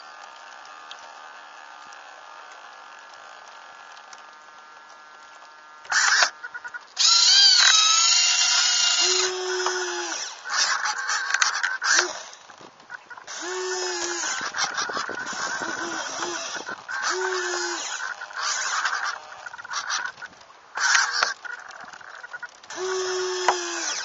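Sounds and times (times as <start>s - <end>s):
steady low hum: 0.0s - 24.0s
whirring servo motor whine: 5.9s - 6.4s, 7.0s - 21.4s, 22.3s - 24.0s.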